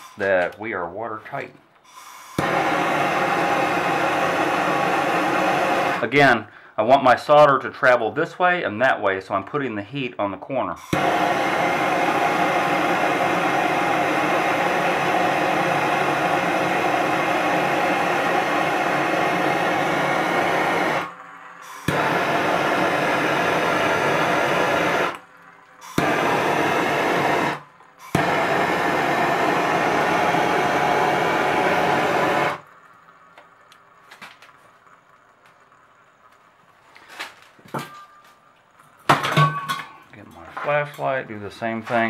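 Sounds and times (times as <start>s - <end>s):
gas torch hissing: 0.0s - 0.6s, 1.4s - 6.9s, 10.7s - 32.9s.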